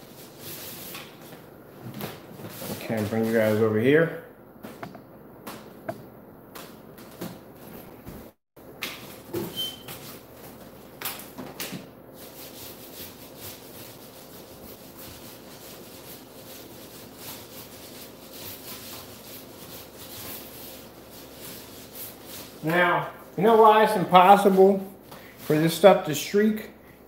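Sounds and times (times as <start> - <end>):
paint roller rubbing strokes: 0.0 - 1.3, 12.1 - 24.8.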